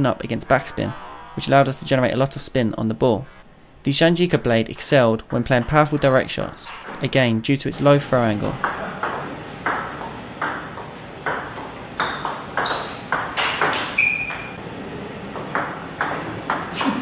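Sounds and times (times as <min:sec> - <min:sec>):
brief high squeak: 0:14.0 - 0:14.6.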